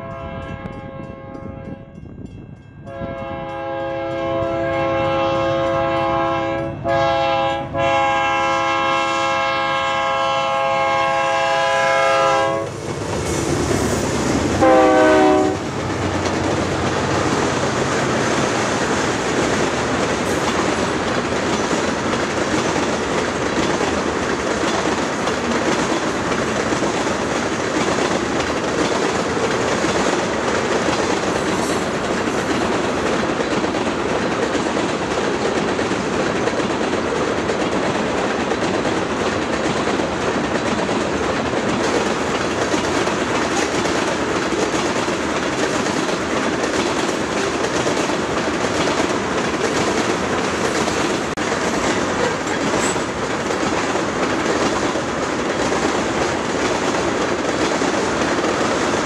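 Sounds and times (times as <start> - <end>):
locomotive air horn blasts: 0.0 - 2.1, 2.8 - 12.8, 14.6 - 15.7
train cars rumbling on rails: 0.0 - 59.0.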